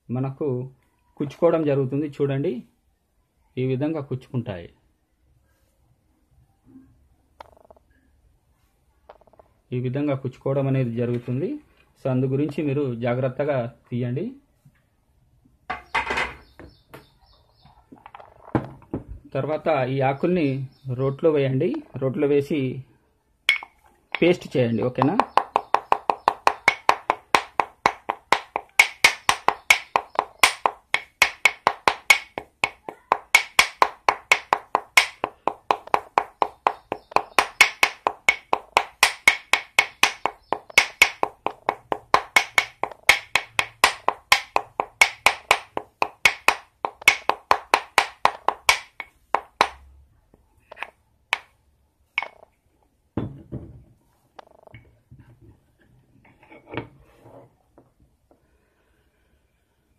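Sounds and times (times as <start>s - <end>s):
pestle pounding in mortar: 23.5s - 49.8s, 50.7s - 51.5s, 52.2s - 52.4s
dull thump: 53.2s - 53.9s.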